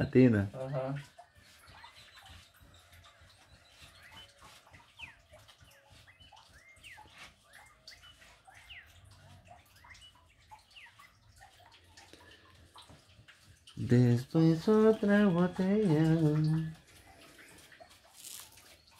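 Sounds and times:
faint bird chirps: 0:00.6 - 0:12.4
wet rubbing of dog's coat: 0:00.6 - 0:18.9.

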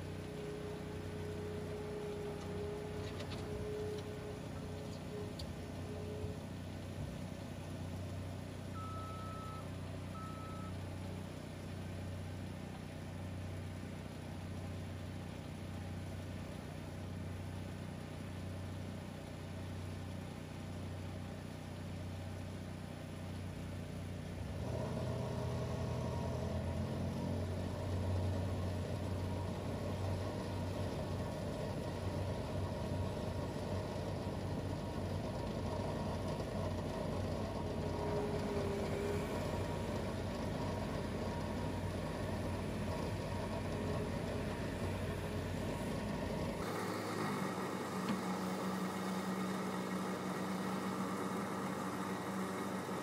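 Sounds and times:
another machine running: 0:00.0 - 0:11.0, 0:24.5 - 0:53.0
machine engines idling: 0:00.0 - 0:11.9, 0:24.6 - 0:53.0
short beeps: 0:08.7 - 0:10.8.

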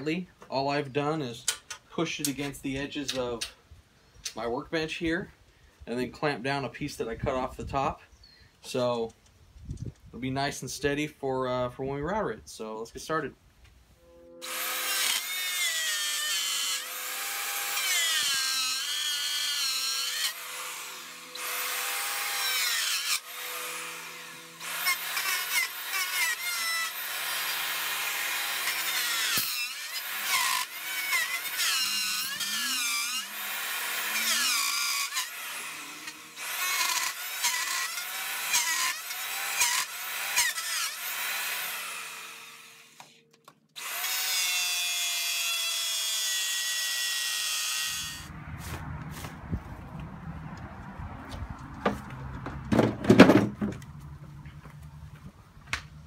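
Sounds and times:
electric router cutting wood: 0:14.4 - 0:43.2, 0:43.8 - 0:48.3.

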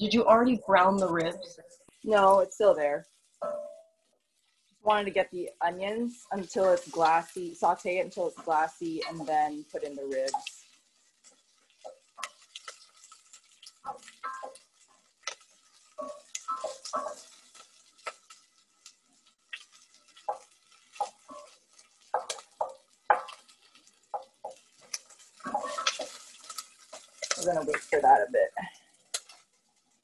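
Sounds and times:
wooden spoon scraping a pot: 0:08.2 - 0:29.6.

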